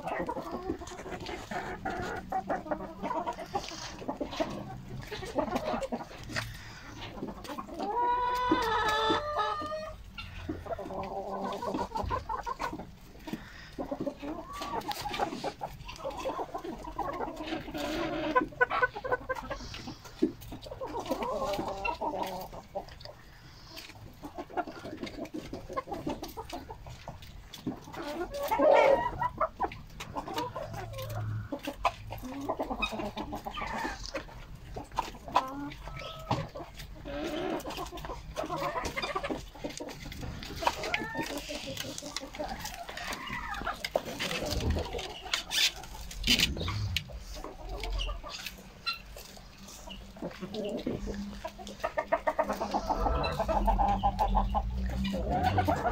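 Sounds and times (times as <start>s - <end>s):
hens clucking: 0.0s - 55.9s.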